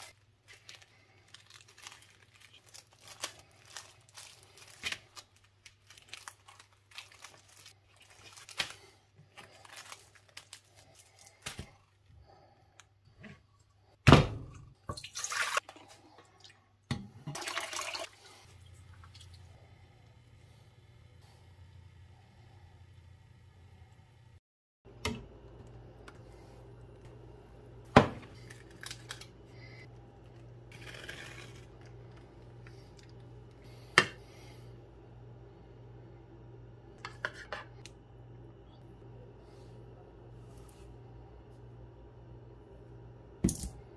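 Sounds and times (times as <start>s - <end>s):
plastic bags crinkling: 0.0s - 11.7s
tape and plastic rustling: 0.0s - 11.8s, 28.3s - 29.4s
low steady hum: 0.0s - 43.9s.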